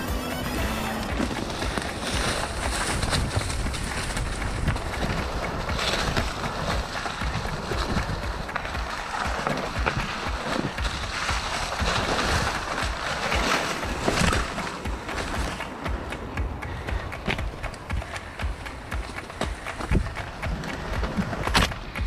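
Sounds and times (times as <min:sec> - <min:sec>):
gusty wind on microphone: 0:01.0 - 0:22.0
bike rattling and knocking: 0:01.1 - 0:22.0.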